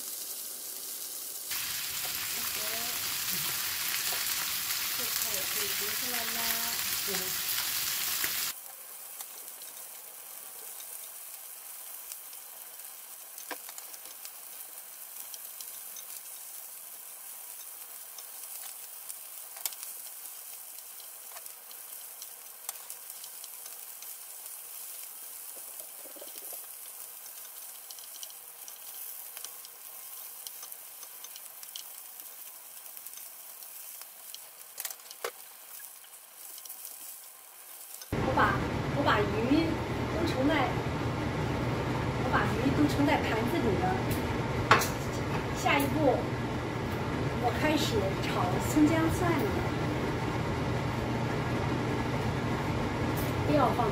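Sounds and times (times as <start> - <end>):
fish sizzling in oil: 0.0 - 38.2.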